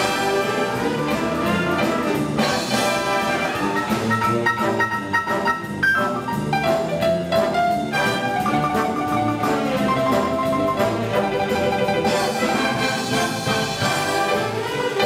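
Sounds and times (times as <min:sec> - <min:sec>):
percussion: 0:00.0 - 0:15.0
wind band playing: 0:00.0 - 0:15.0.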